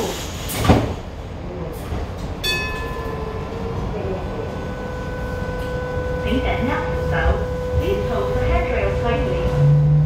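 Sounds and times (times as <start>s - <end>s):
light rail car rumble: 0.0s - 10.0s
electric motor whine: 2.7s - 8.9s.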